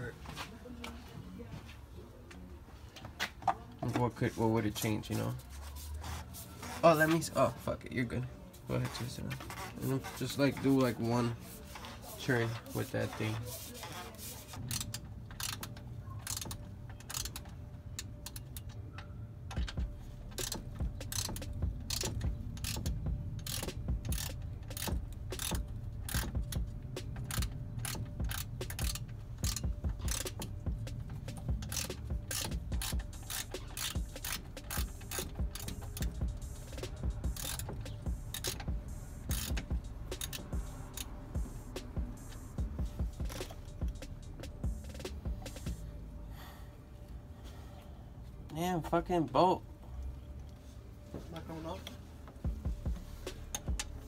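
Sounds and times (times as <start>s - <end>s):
socket ratchet clicking: 14.6s - 18.8s, 19.4s - 45.8s, 53.3s - 54.0s.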